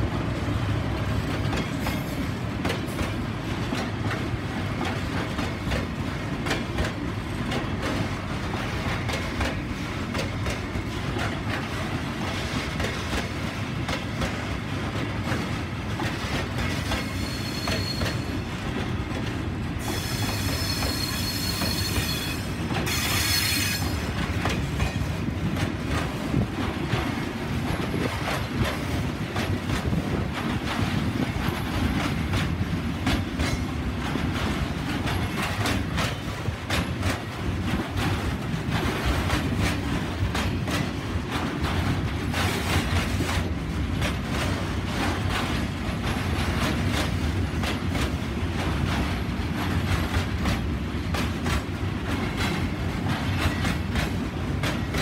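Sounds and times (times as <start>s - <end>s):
freight train rumbling past: 0.0s - 55.0s
wheels clicking over rail joints: 0.9s - 55.0s
high wheel squeal: 17.0s - 18.4s, 19.8s - 24.0s.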